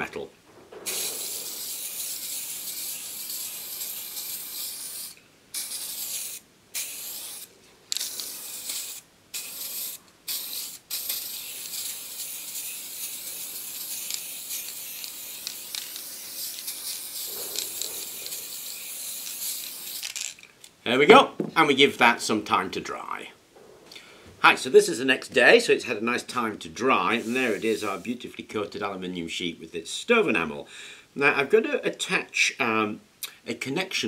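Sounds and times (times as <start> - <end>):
aerosol spray can hissing: 0.8 - 20.3, 27.2 - 28.0.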